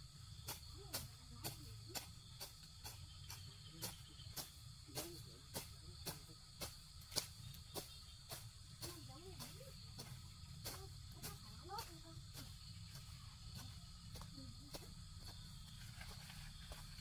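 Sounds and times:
insect chirring: 0:00.0 - 0:17.0.

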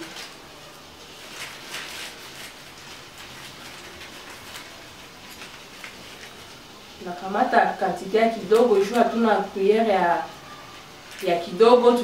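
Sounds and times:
plastic bag crinkling: 0:00.0 - 0:07.0, 0:10.7 - 0:12.0.

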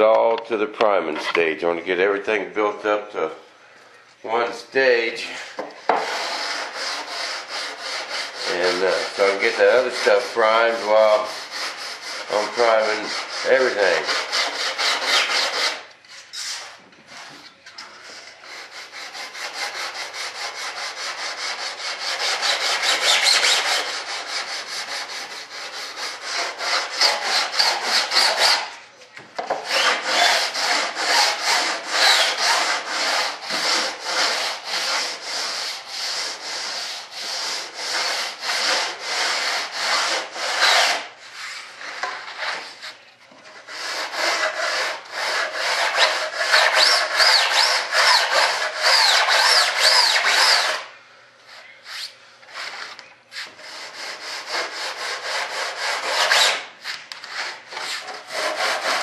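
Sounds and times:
sandpaper rubbing on wood: 0:05.3 - 0:15.8, 0:18.0 - 0:28.7, 0:29.6 - 0:50.8, 0:51.8 - 0:59.0.

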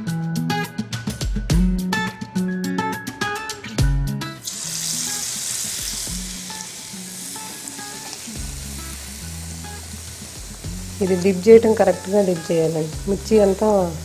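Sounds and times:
plucked guitar music: 0:01.5 - 0:14.0
chillies deep-frying in oil: 0:04.4 - 0:14.0.

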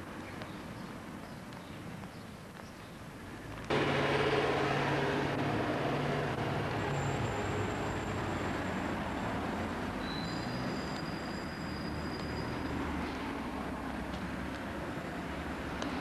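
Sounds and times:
vehicle engine running: 0:03.7 - 0:06.8.

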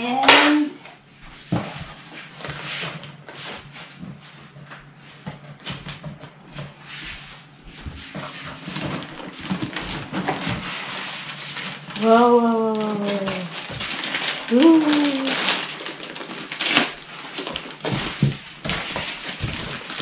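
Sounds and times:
plastic bag crinkling: 0:08.6 - 0:20.0.

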